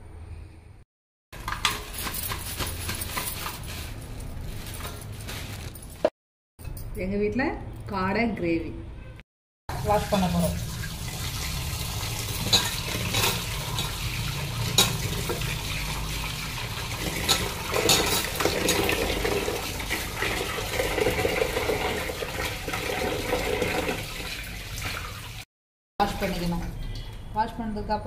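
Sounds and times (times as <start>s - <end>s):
tap water running into bowl: 9.7s - 25.4s.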